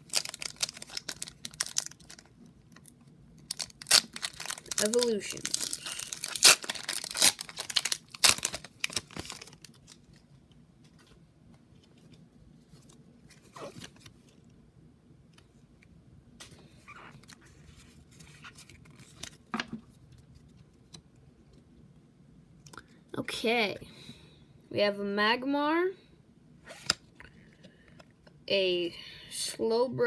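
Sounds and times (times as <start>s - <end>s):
foil pack crinkling and tearing: 0.0s - 10.2s.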